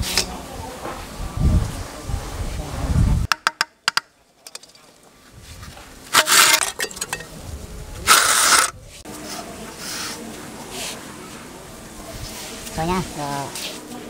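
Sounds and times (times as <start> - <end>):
gritty scraping of slab: 6.1 - 7.3, 8.0 - 8.8.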